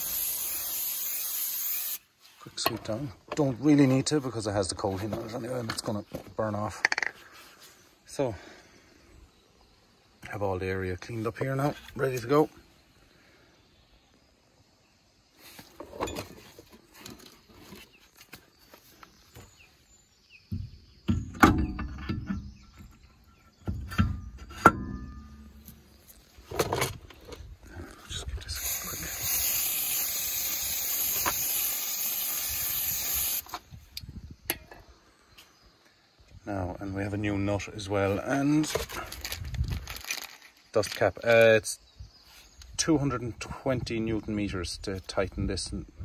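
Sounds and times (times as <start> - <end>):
aerosol can spraying: 0.0 - 2.0, 28.6 - 33.5.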